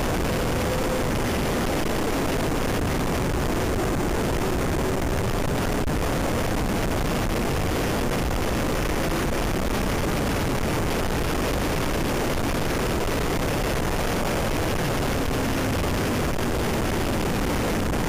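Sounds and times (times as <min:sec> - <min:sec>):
motorcycle engine running: 0:00.0 - 0:06.8
wind noise on microphone: 0:00.0 - 0:18.0.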